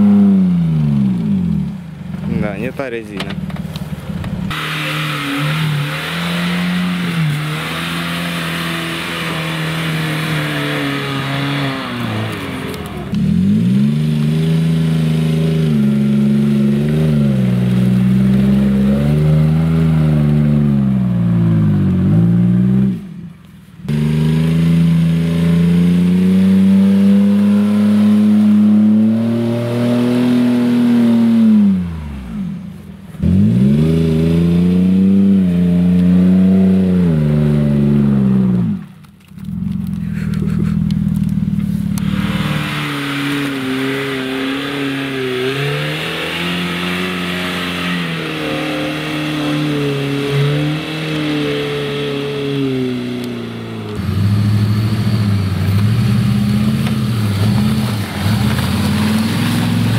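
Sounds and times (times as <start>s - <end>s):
vehicle churning through mud: 3.7s - 59.9s
engine revving hard: 4.5s - 23.0s, 23.9s - 32.5s, 41.7s - 59.9s.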